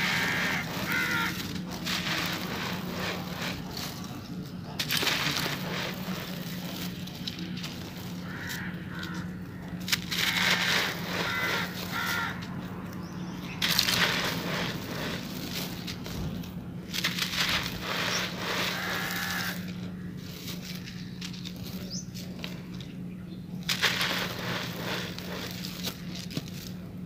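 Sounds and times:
bird calling: 0:00.0 - 0:04.2, 0:07.9 - 0:15.2, 0:17.8 - 0:22.2
grains pouring through fingers: 0:00.0 - 0:09.2, 0:09.8 - 0:12.4, 0:13.5 - 0:22.6, 0:23.7 - 0:26.8
sand-cement lumps crunching by hand: 0:00.0 - 0:27.0
steady low hum: 0:00.0 - 0:27.0.

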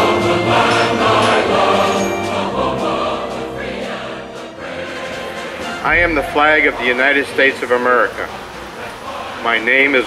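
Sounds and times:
sustained layered chords music: 0:02.6 - 0:07.9.

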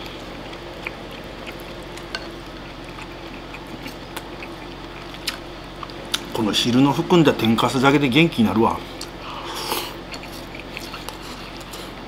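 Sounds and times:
person chewing: 0:00.0 - 0:06.3, 0:08.9 - 0:12.0
low room hum: 0:00.0 - 0:12.0.

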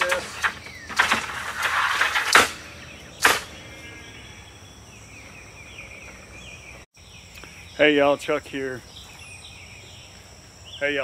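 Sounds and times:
birds chirping: 0:00.0 - 0:11.0
sharp knock: 0:03.2 - 0:03.5.

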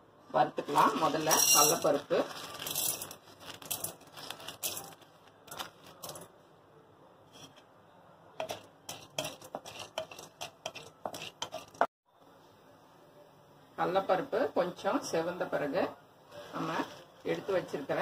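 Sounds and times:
wooden spatula scraping pan: 0:07.3 - 0:07.6, 0:08.4 - 0:11.9.

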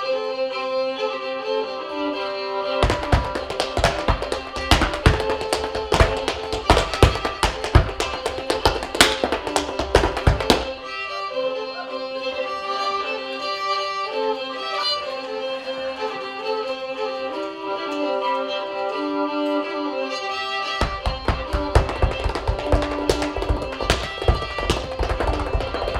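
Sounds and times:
bowed fiddle melody: 0:00.0 - 0:25.9
tap-dance steps on wood: 0:02.8 - 0:10.8, 0:20.8 - 0:25.9.

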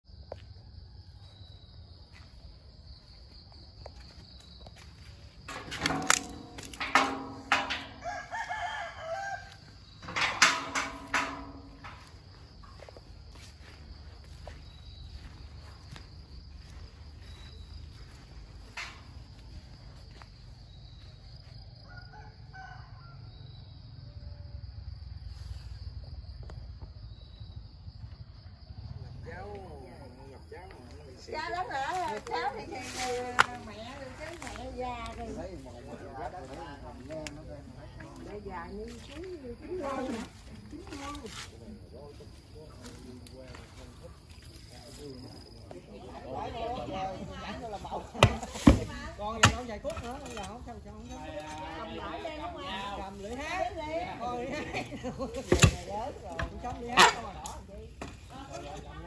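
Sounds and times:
high insect trill: 0:00.1 - 0:59.0
rooster crowing: 0:06.9 - 0:10.0, 0:21.8 - 0:23.6.

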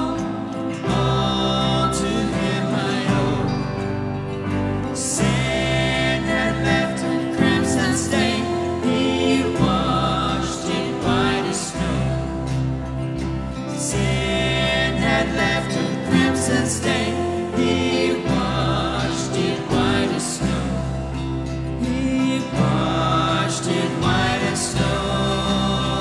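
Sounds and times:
man singing into microphone: 0:00.0 - 0:03.9, 0:21.8 - 0:26.0
worship band playing a hymn: 0:00.0 - 0:26.0.

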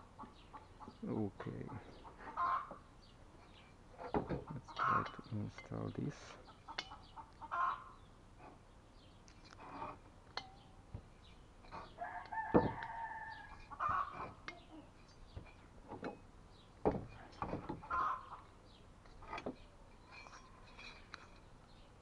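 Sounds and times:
chickens clucking: 0:00.0 - 0:02.9, 0:03.5 - 0:08.6, 0:11.7 - 0:15.4, 0:17.3 - 0:18.6
rooster crowing: 0:12.0 - 0:14.1.

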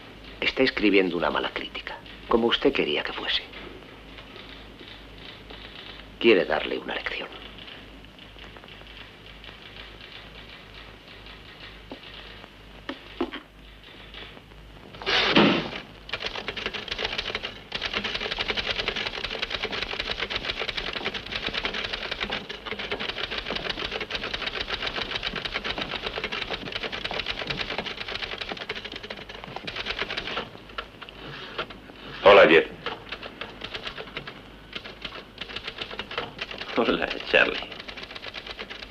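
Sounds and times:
typewriter keys clacking: 0:07.4 - 0:14.3, 0:16.1 - 0:38.9
loud burst of noise: 0:14.9 - 0:17.0.

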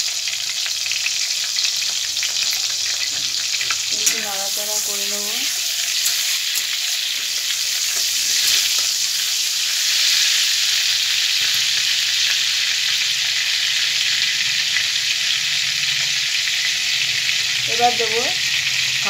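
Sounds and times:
oil sizzling in a pan: 0:00.0 - 0:19.0
spatula scraping a pan: 0:01.8 - 0:10.5.

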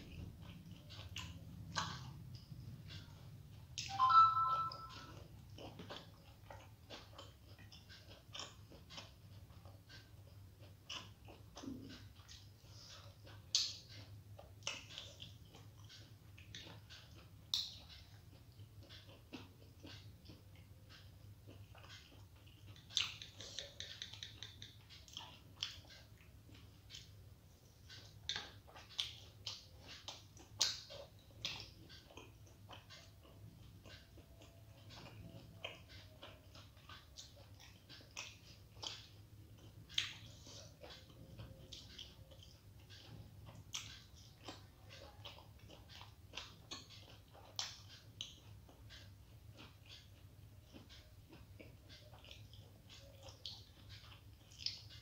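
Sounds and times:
faint low hum: 0:00.0 - 0:55.0
person chewing food: 0:00.0 - 0:55.0.

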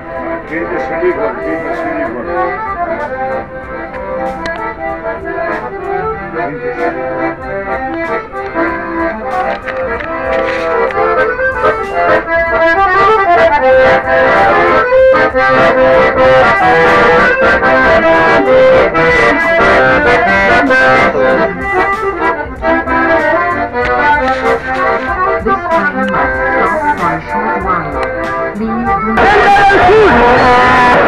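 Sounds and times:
accordion music: 0:00.0 - 0:31.0.

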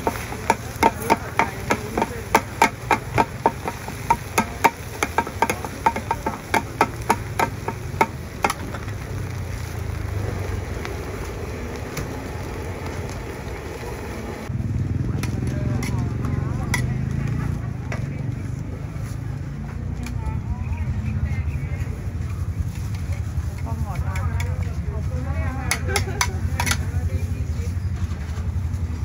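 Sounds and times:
metal spatulas striking iron pan: 0:00.0 - 0:08.6, 0:25.7 - 0:26.9
steady background noise: 0:00.0 - 0:29.0.

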